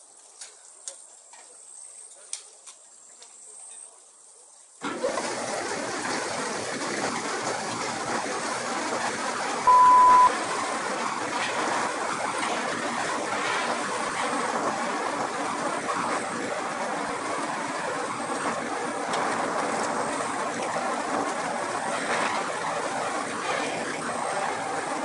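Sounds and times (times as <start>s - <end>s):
loud beep: 9.7s - 10.4s.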